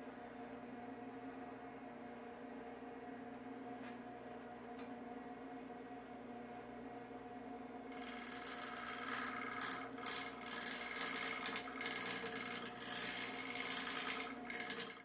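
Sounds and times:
lathe running hum: 7.9 - 15.0
lathe tool scraping wood: 7.9 - 15.0.

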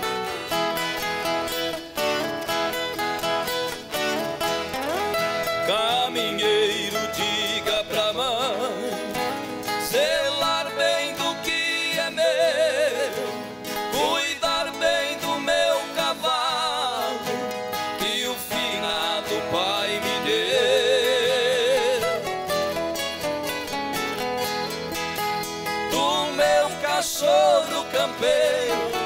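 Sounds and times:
strummed acoustic guitars: 0.0 - 29.0
two people singing with vibrato: 5.5 - 22.8, 25.6 - 29.0.

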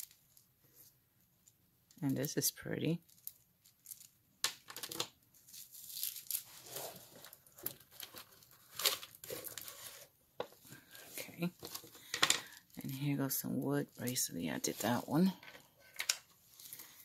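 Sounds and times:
jewelry clicking and clattering: 3.0 - 5.1, 11.6 - 12.8, 15.2 - 17.0
rustling handling noise: 3.0 - 17.0.

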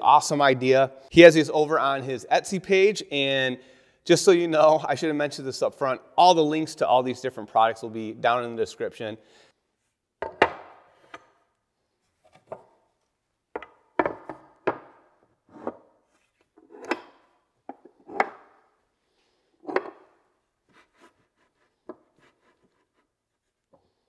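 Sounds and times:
wood and tools knocking: 13.6 - 15.0.

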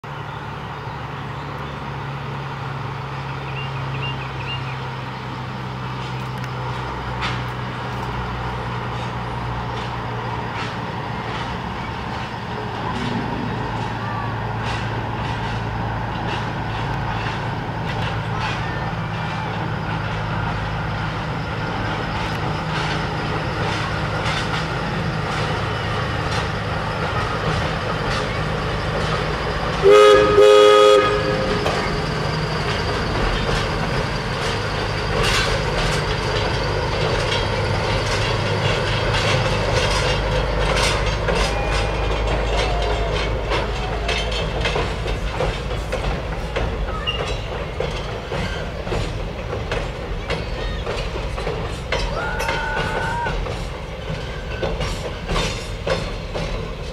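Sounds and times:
diesel locomotive running: 0.0 - 56.9
train wheels clattering over rail joints: 2.0 - 56.9
locomotive horn: 29.8 - 32.0.

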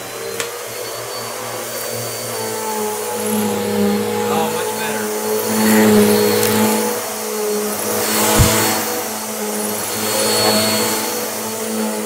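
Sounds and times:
vacuum cleaner running on carpet: 0.0 - 12.0
low thump: 8.3 - 8.8.

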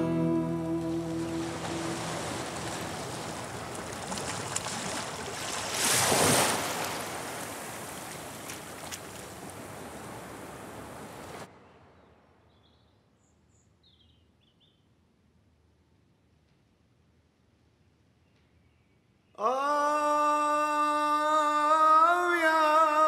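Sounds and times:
sea waves washing: 0.0 - 11.5.

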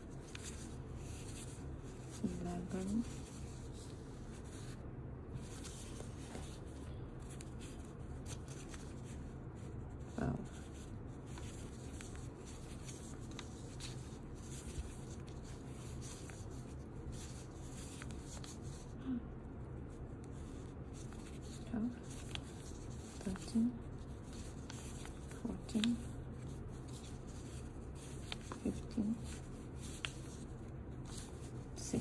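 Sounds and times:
low background hum: 0.0 - 32.0.

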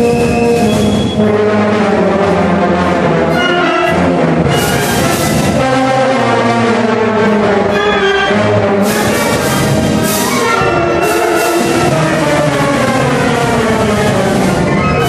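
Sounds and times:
concert band playing: 0.0 - 15.0
loud crashes: 8.6 - 15.0.

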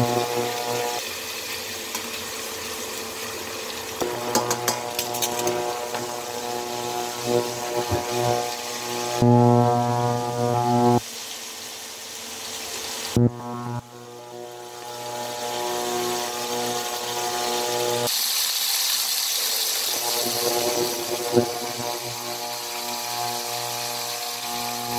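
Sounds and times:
droning hum: 0.0 - 1.0, 4.0 - 11.0, 13.2 - 18.1, 20.0 - 24.9
chicken sizzling in oil: 0.0 - 9.2, 11.0 - 24.9.

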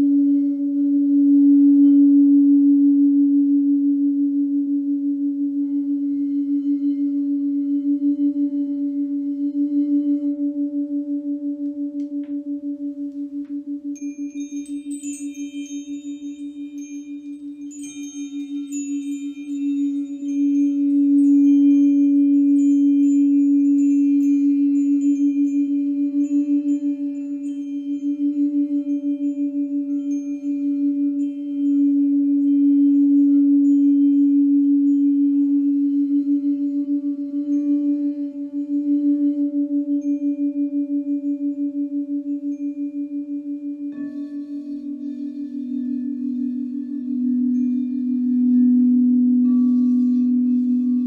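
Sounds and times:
crystal singing bowl tone: 0.0 - 51.0
high bright chime tones: 14.0 - 32.6.

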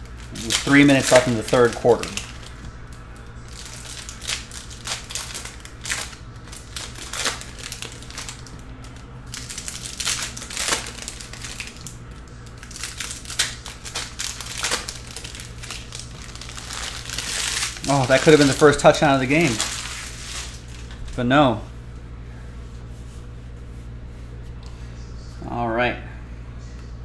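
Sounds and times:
foil wrappers crinkling and tearing: 0.0 - 21.2
steady low hum: 0.0 - 27.0.

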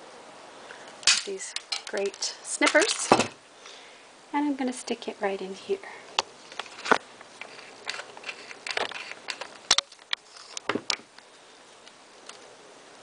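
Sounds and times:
light rustling: 6.2 - 12.5.

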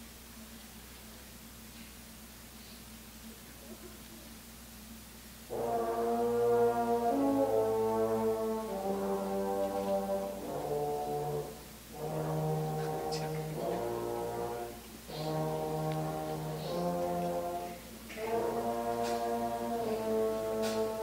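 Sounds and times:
concert band playing chords: 5.5 - 21.0.

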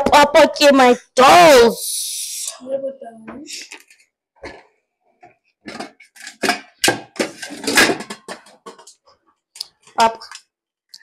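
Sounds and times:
metal cookware clattering: 5.7 - 9.1.

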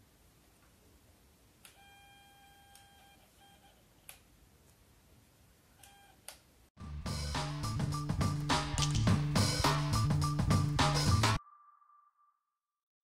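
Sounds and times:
music: 6.8 - 11.4.

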